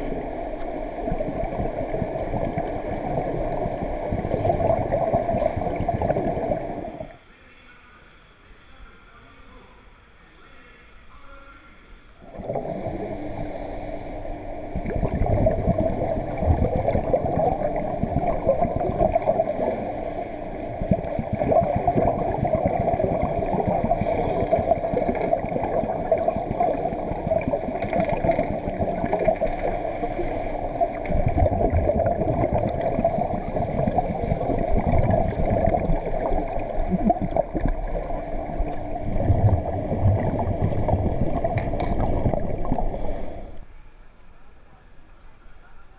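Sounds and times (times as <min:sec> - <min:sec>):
exhaled bubbles hissing: 0:00.0 - 0:07.2, 0:12.2 - 0:43.8
muffled underwater gurgling: 0:00.0 - 0:07.2, 0:12.2 - 0:43.7.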